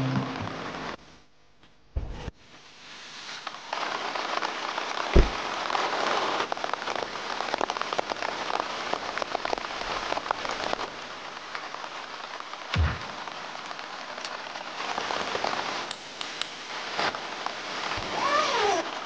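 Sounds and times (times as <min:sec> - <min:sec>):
heavy rain falling: 0:00.0 - 0:01.0, 0:02.7 - 0:19.0
dull thump: 0:05.2 - 0:05.4, 0:12.8 - 0:13.1.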